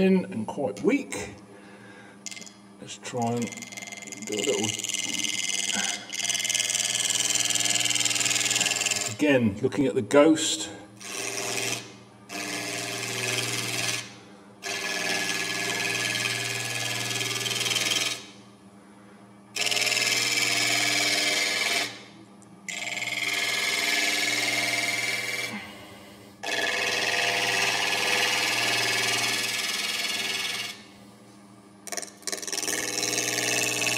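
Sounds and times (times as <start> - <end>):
lathe humming: 1.6 - 18.4, 19.0 - 31.0, 31.8 - 33.9
gouge cutting wood on a lathe: 3.2 - 9.2, 11.0 - 18.3, 19.6 - 22.0, 22.7 - 25.6, 26.4 - 30.8, 31.9 - 33.9.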